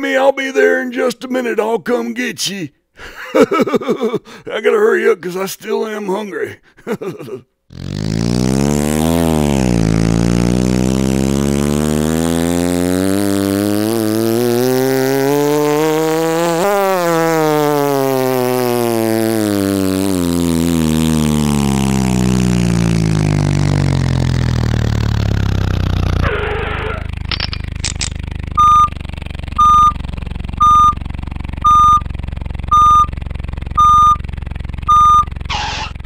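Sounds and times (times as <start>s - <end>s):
truck engine revving: 7.7s - 36.0s.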